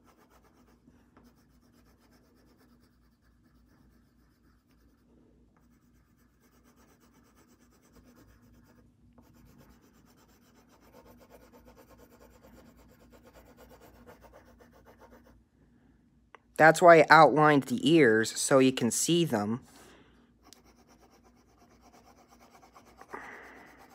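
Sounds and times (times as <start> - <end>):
colored pencil shading on paper: 0.0 - 15.4, 20.4 - 23.9.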